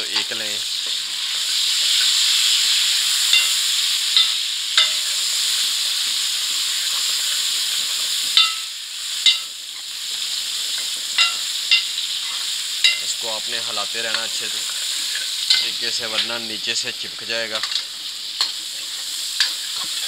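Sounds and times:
tomatoes and onions sizzling in oil: 0.0s - 20.0s
spoon clinking against pan: 3.3s - 3.6s, 4.2s - 5.1s, 8.4s - 9.5s, 11.2s - 11.9s, 12.8s - 13.1s, 15.5s - 16.3s.

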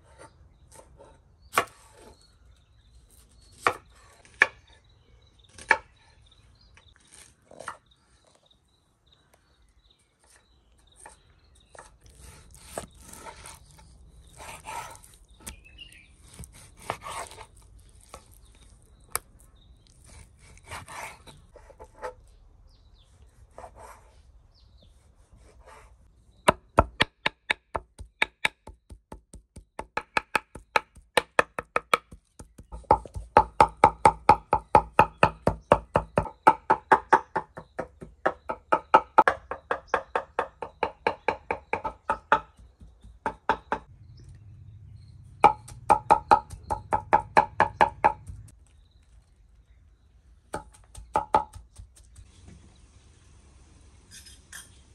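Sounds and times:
knife slicing and scraping: 6.9s - 7.8s, 11.0s - 22.4s, 54.1s - 54.8s
knife chopping on wooden board: 16.3s - 18.2s, 45.4s - 48.5s, 50.5s - 52.0s.

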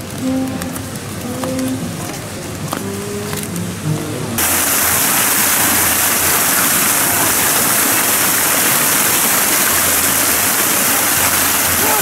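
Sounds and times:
fountain water splashing: 0.0s - 3.8s, 4.4s - 12.0s.

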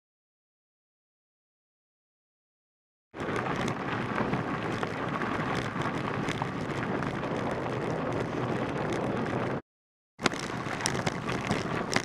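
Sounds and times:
bike tyres rolling on gravel: 3.2s - 9.6s, 10.2s - 12.0s
small clicks and rattles: 3.2s - 9.6s, 10.2s - 12.0s.

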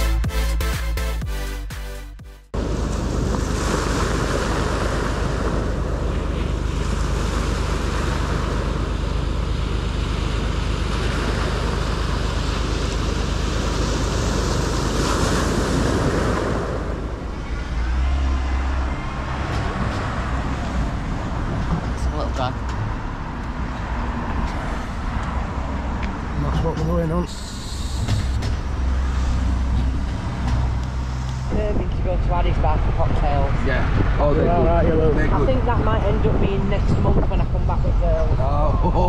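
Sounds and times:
waves washing over pebbles: 2.6s - 17.4s.

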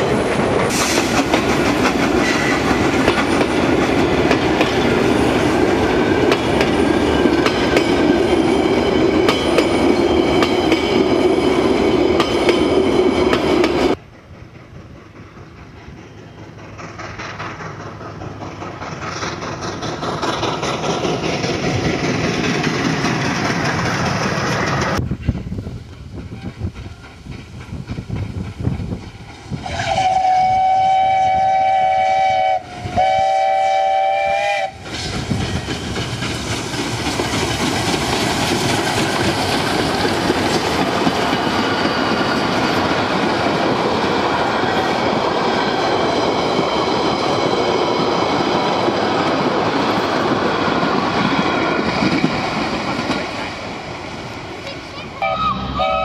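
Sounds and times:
steam tram rolling past: 0.0s - 56.0s
steam locomotive whistle: 29.6s - 35.0s, 55.2s - 56.0s.

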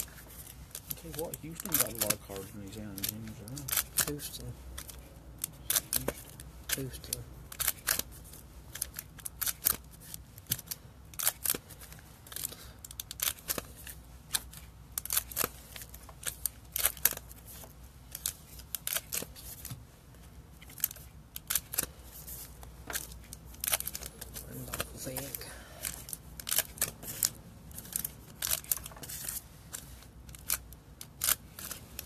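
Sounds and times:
wrappers crinkling and cards clicking: 0.0s - 32.0s.

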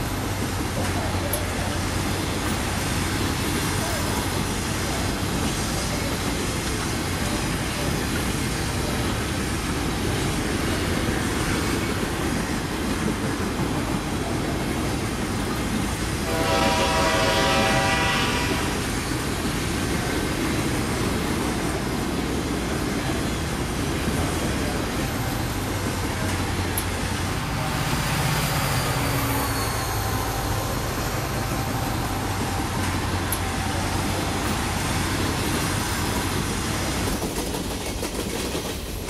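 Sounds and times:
freight train rumbling: 0.0s - 39.0s
locomotive horn blast: 16.2s - 18.9s.

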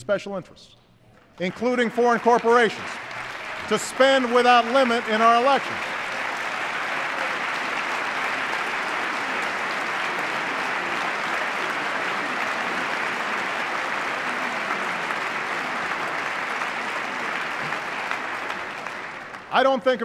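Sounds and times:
large audience applauding: 1.4s - 20.0s.

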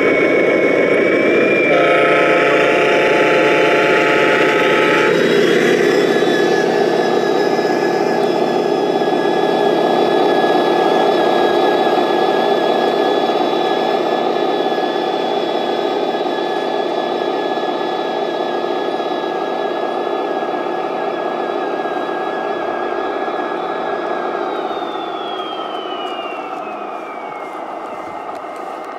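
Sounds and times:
high whine from drive: 0.0s - 28.9s.

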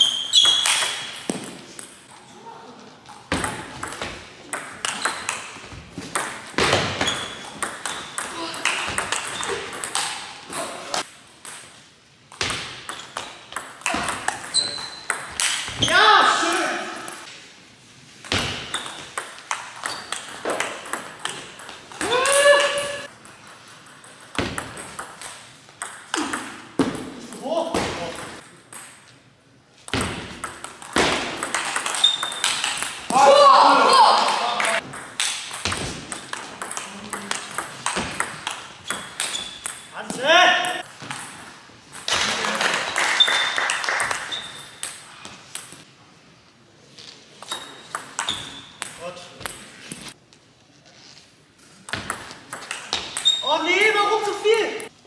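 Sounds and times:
shoe squeaks on floor: 0.0s - 1.1s, 7.0s - 7.5s, 14.4s - 15.1s, 19.8s - 20.2s, 31.9s - 32.6s, 39.2s - 39.7s, 43.2s - 43.6s, 44.2s - 44.8s, 47.0s - 48.8s, 53.1s - 53.6s
player shouting: 15.8s - 17.0s, 22.0s - 23.1s, 33.1s - 34.8s.

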